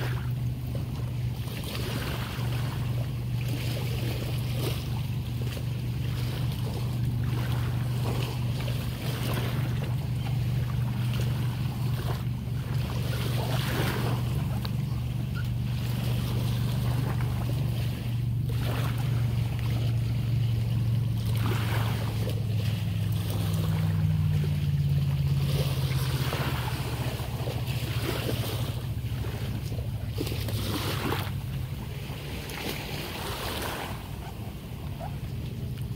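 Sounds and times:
small waves lapping: 0:00.0 - 0:35.9
steady low hum: 0:00.0 - 0:35.9.

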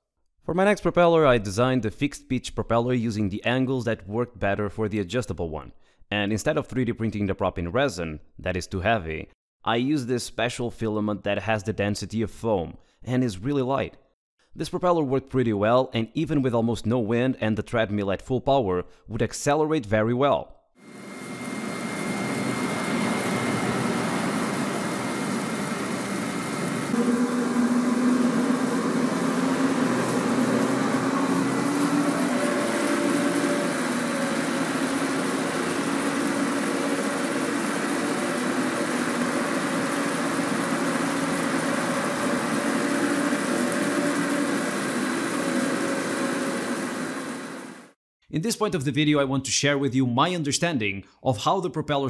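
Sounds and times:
treadmill motor hum and belt: 0:20.9 - 0:47.9.

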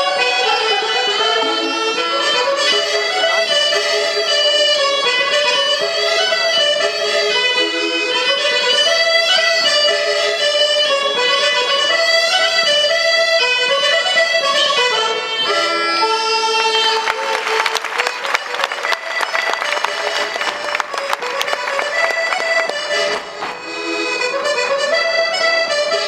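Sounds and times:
folk dance tune on accordion: 0:00.0 - 0:26.0
audience applauding: 0:16.4 - 0:23.3.

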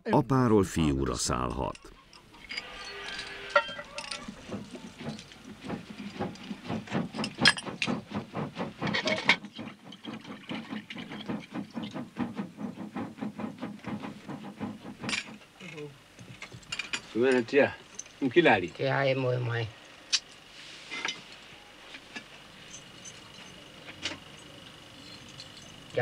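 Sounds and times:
rhythmic hammer knocks: 0:03.4 - 0:15.4.

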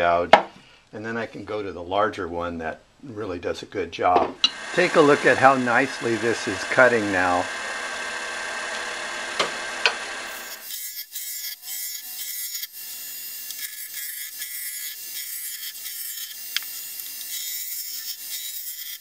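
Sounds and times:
lathe gouge scraping wood: 0:04.5 - 0:19.0.

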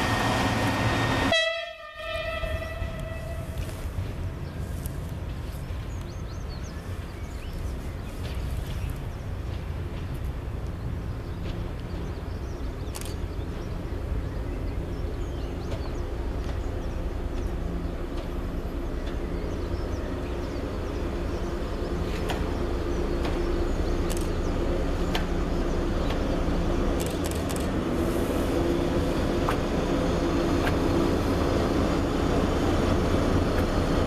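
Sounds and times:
diesel locomotive engine running: 0:00.0 - 0:34.0
sharp clicks: 0:27.0 - 0:27.8.

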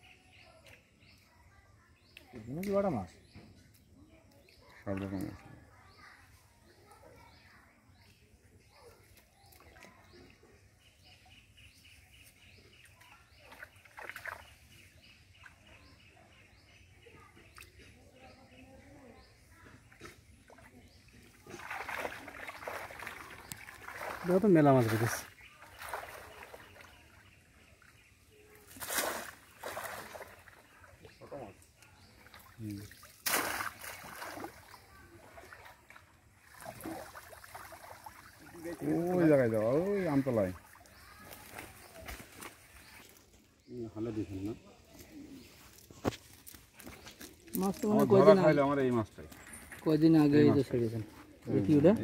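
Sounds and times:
faint bird chirping: 0:00.0 - 0:52.0
net splashing in water: 0:13.5 - 0:14.6, 0:21.4 - 0:27.2, 0:28.5 - 0:31.1, 0:32.2 - 0:43.1.

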